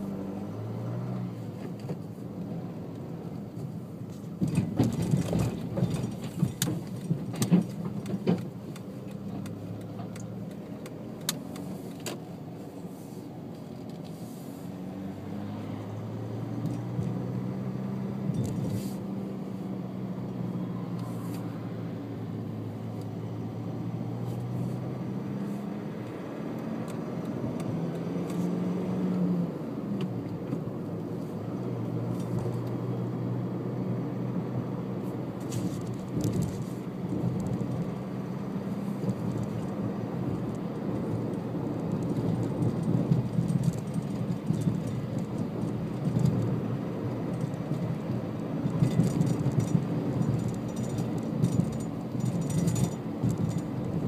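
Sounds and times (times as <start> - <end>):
car engine hum: 0.0 - 54.0
faint ticks and rattles: 48.7 - 54.0.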